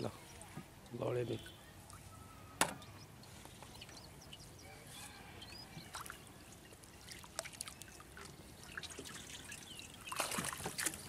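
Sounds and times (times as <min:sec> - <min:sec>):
water trickling and dripping: 0:05.4 - 0:11.0
water pouring and splashing: 0:05.7 - 0:11.0.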